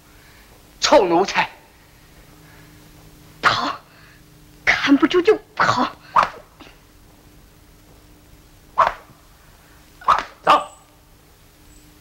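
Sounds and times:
dog barking: 8.8s - 9.1s, 10.0s - 10.8s.

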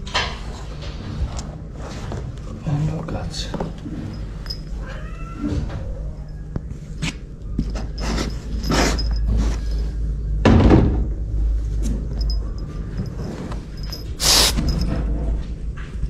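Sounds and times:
cat meowing: 4.8s - 6.2s.

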